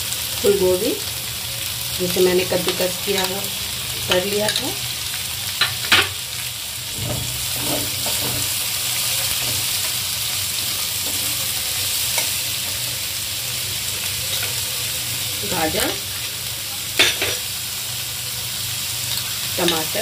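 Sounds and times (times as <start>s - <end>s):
vegetables sizzling in ghee: 0.0s - 20.0s
spoon stirring and scraping: 7.0s - 10.0s.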